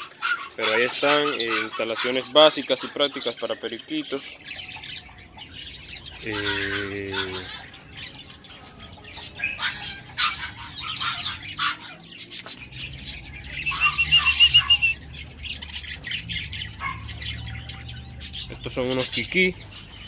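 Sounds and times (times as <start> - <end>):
small birds chirping and squawking: 0.0 - 20.0
fast high bird trill: 8.6 - 17.6.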